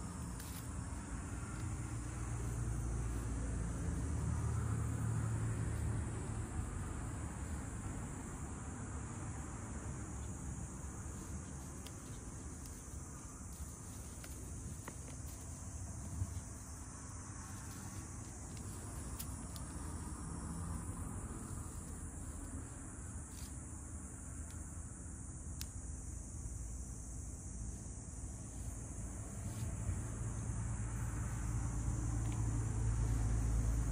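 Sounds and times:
insect chorus chirring: 0.0s - 33.9s
faint ticks: 25.5s - 25.9s.

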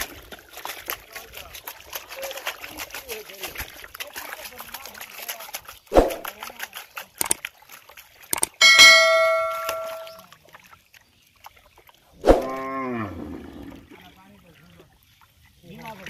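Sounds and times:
fish splashing in water: 0.0s - 16.0s
bell ding sound effect: 8.6s - 10.1s.

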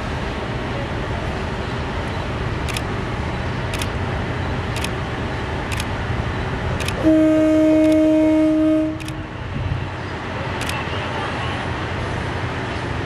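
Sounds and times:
train horn blast: 7.0s - 9.2s.

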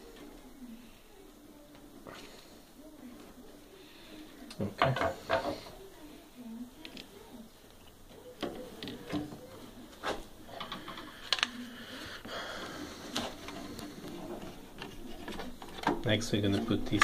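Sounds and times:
plastic parts clicking and knocking: 4.5s - 5.7s, 7.8s - 11.6s, 13.1s - 17.0s.

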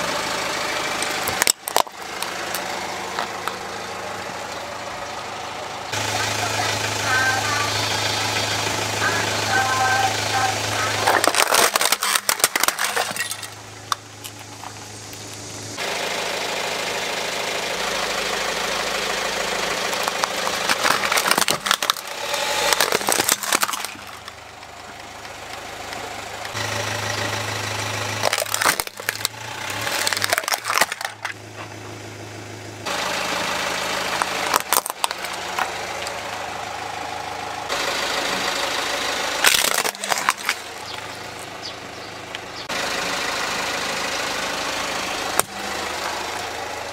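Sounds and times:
plastic toys crunching under tyre: 1.0s - 3.7s, 9.5s - 15.5s, 19.6s - 24.5s, 28.0s - 31.7s, 34.0s - 36.4s, 39.4s - 42.4s.

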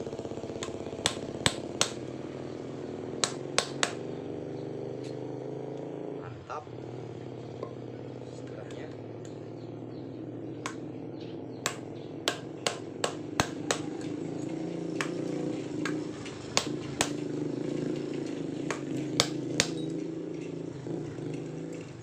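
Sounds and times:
steady low hum: 0.0s - 22.0s
hammer striking metal: 0.6s - 2.0s, 3.2s - 4.0s, 11.6s - 14.1s, 15.0s - 17.2s, 18.7s - 19.9s.

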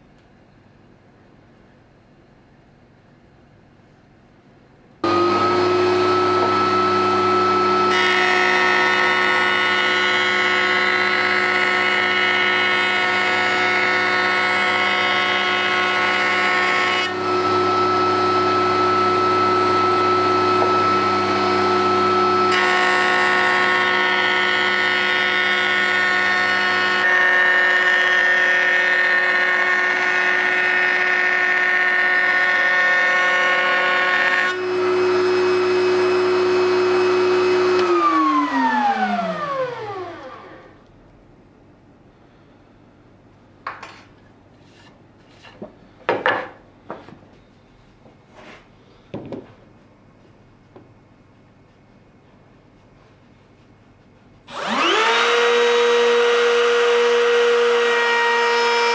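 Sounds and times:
router cutting wood: 5.0s - 40.8s, 54.5s - 58.9s.

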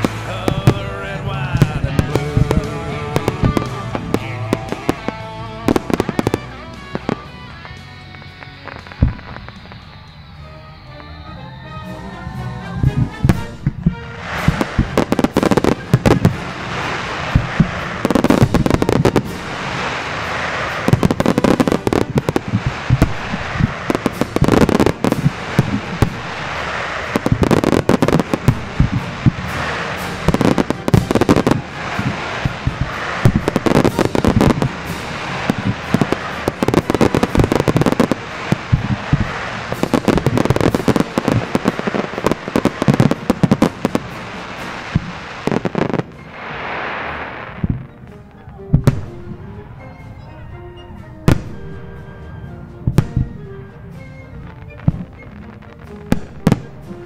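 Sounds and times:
firework crackle: 0.0s - 11.6s, 12.7s - 49.6s, 52.9s - 57.0s
firework shell bursts: 13.3s - 48.0s.

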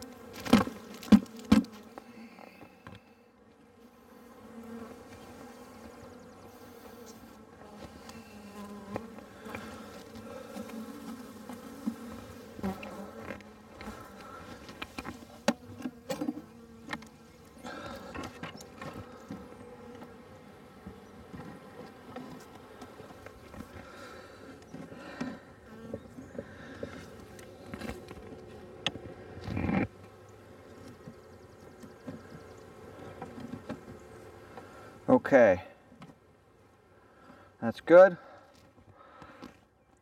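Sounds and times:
honeybees buzzing: 0.0s - 40.0s.

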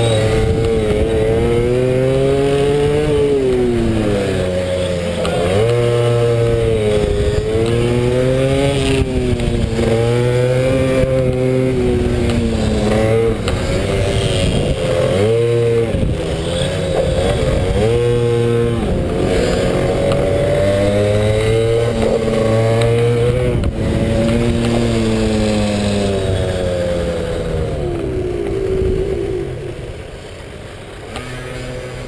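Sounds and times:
motorbike engine revving: 0.0s - 32.0s.

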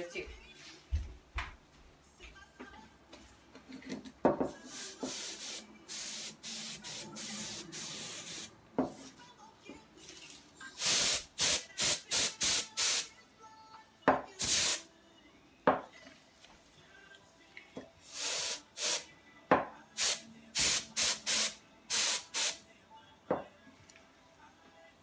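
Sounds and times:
compressed air hissing: 4.7s - 8.5s, 10.8s - 13.1s, 14.4s - 14.8s, 18.0s - 19.1s, 20.0s - 22.6s.

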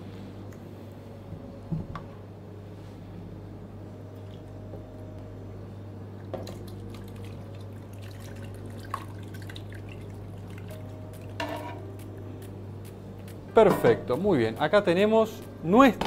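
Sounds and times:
low hum: 0.0s - 14.2s.

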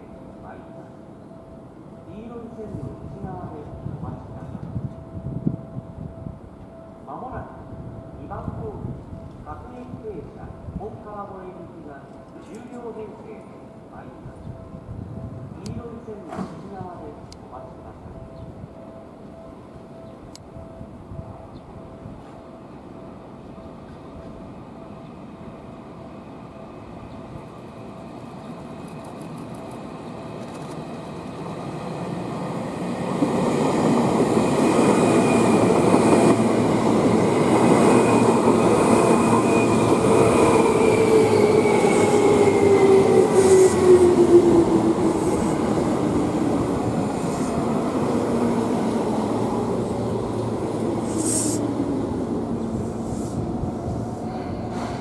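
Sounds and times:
train wheels rumbling on rail: 28.1s - 55.0s.

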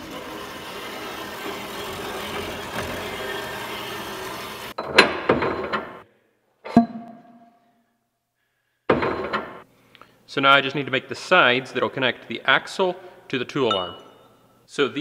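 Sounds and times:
bandsaw cutting metal: 0.0s - 4.8s
sharp metal knocks: 8.9s - 9.6s.

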